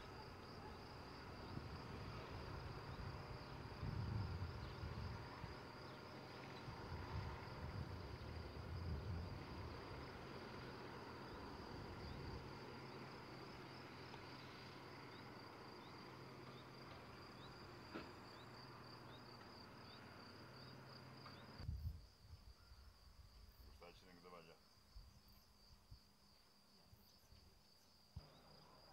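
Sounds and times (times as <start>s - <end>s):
low rumble and hiss: 0.0s - 22.2s
crickets trilling: 0.0s - 28.9s.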